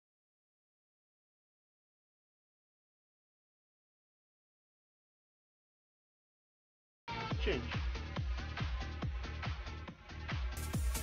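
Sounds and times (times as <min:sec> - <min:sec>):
electronic music with steady beat: 0:07.1 - 0:11.0.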